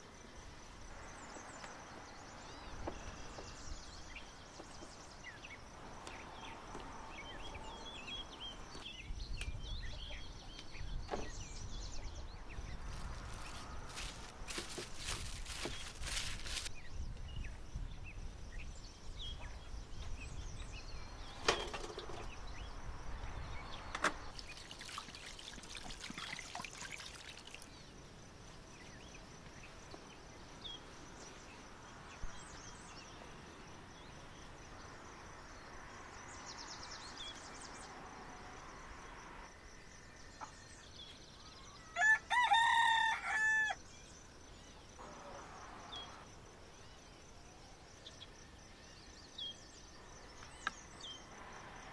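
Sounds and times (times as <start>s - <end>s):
rustling: 12.8s - 16.7s
rooster crowing: 41.9s - 43.8s.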